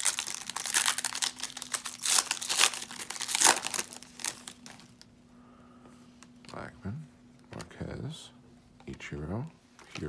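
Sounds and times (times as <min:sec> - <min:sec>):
foil wrapper crinkling: 0:00.0 - 0:05.1.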